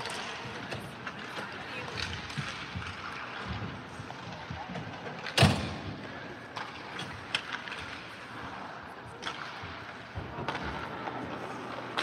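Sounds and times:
hockey sticks and pucks cracking: 0.0 - 12.0.

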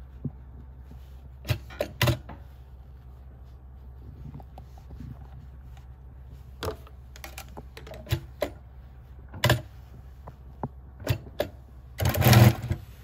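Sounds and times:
low steady hum: 0.0 - 13.0
sewing machine clicks and knocks: 11.0 - 12.8.

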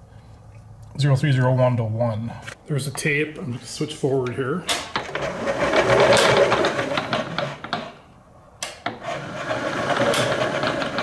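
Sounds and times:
mill spindle motor whirring: 8.9 - 11.0.

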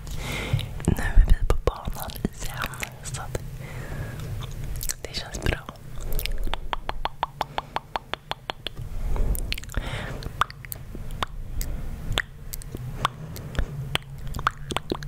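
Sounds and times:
wet mouth clicks: 4.2 - 8.8, 9.4 - 15.0
breathy rush: 8.8 - 10.4.

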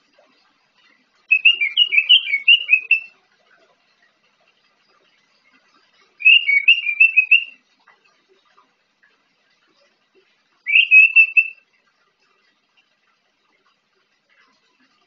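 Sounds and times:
thrush singing whistled notes: 1.3 - 3.1, 6.2 - 7.6, 10.7 - 11.6.

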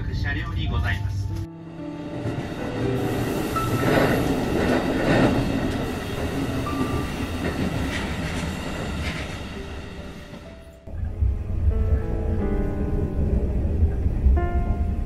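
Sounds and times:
electric train running on track: 1.6 - 15.0.

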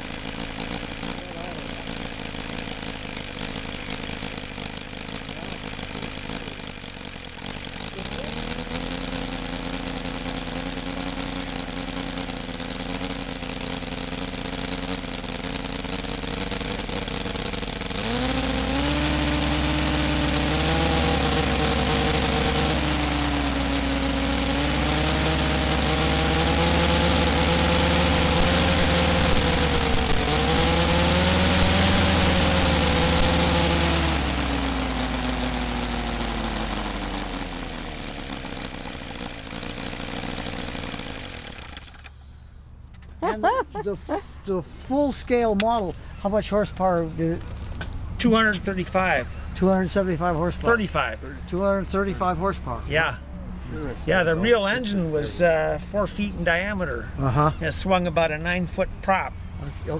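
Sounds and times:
model aircraft engine buzzing: 0.0 - 42.6.

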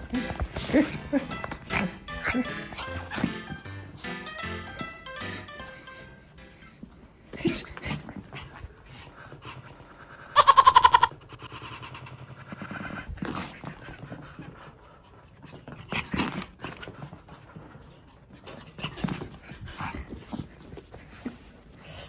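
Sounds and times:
dog panting and whimpering: 0.0 - 10.4
dog high-pitched cry: 10.4 - 11.2.

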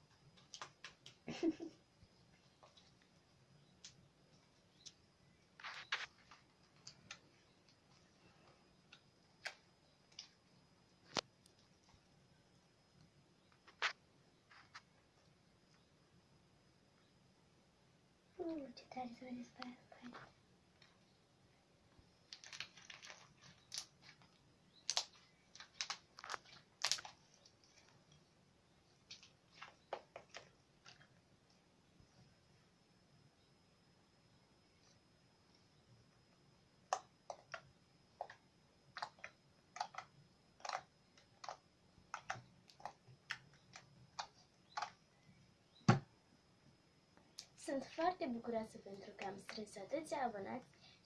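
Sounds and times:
slime thump: 45.9 - 46.1.

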